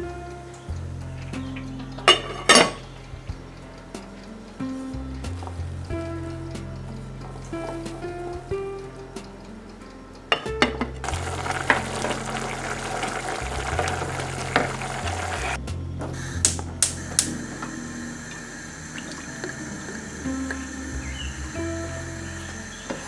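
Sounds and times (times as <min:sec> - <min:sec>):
background music: 0:00.0 - 0:23.0
pot boiling and bubbling: 0:11.0 - 0:15.6, 0:16.8 - 0:23.0.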